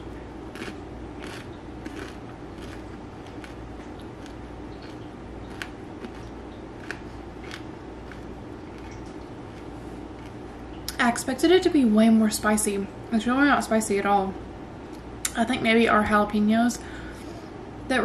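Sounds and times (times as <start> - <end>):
low background hum: 0.0 - 18.0
person chewing crunchy chip: 0.5 - 10.5.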